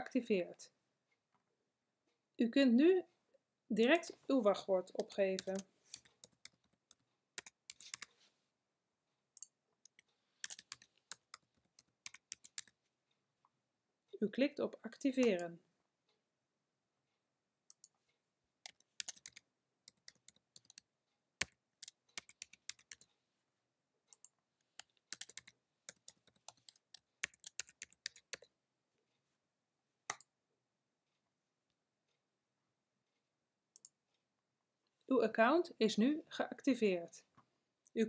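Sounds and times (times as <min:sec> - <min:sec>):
computer keyboard typing: 0:05.0 - 0:08.1, 0:09.4 - 0:12.8, 0:18.6 - 0:23.1, 0:24.1 - 0:28.5.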